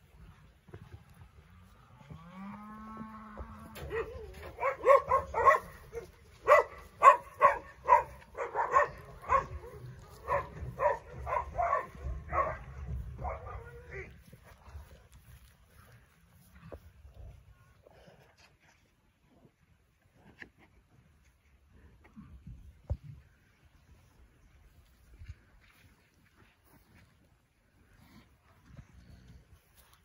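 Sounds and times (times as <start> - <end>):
calves mooing: 1.5 - 5.5.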